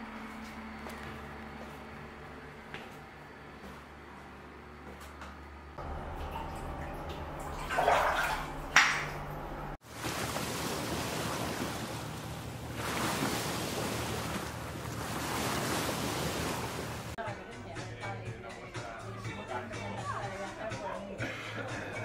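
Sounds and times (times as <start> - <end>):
motor hum: 0.0 - 17.2
bathtub jets churning water: 5.8 - 17.2.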